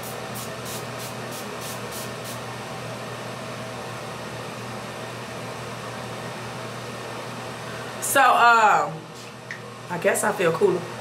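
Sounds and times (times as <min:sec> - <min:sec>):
spray bottle hissing: 0:00.0 - 0:02.4.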